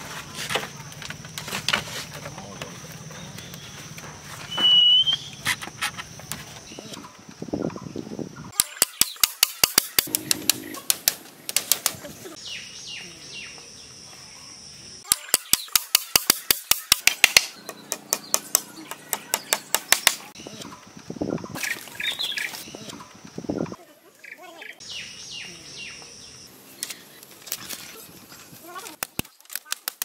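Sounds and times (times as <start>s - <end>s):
hammer driving nails into bamboo: 8.6s - 12.0s, 15.1s - 20.3s.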